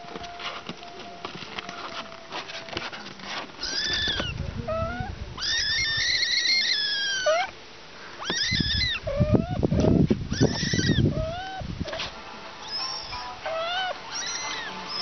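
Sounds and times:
kitten mewing: 3.6s - 7.6s, 8.2s - 15.0s.

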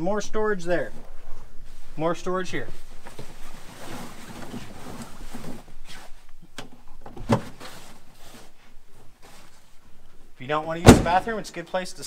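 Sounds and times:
heavy fabric rustling: 0.8s - 6.3s, 7.2s - 11.4s
knocks and bumps: 10.8s - 11.4s.

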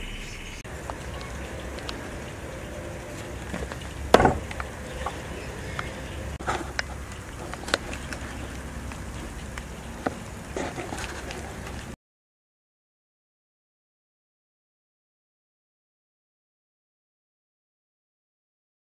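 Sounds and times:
hatchet chopping wood: 4.1s - 4.6s.

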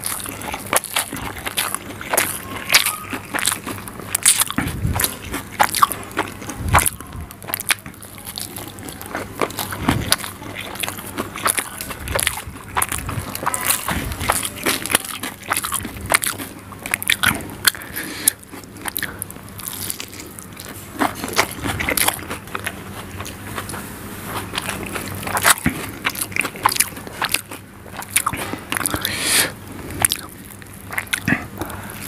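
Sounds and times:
wet chewing mouth smacks: 0.0s - 31.8s.

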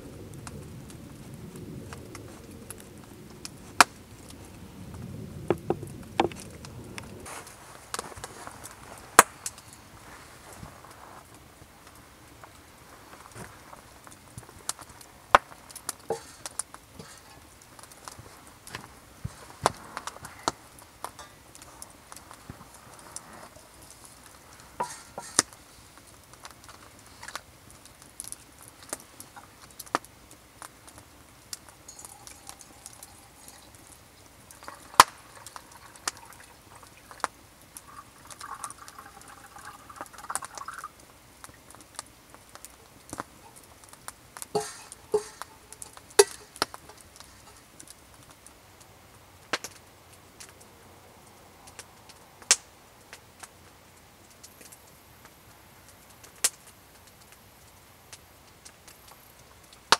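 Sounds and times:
metal kettle and mug clinking: 24.8s - 25.4s, 31.8s - 36.5s, 44.5s - 47.6s
liquid pouring into mug: 31.9s - 33.8s, 34.5s - 37.2s, 37.8s - 40.9s.

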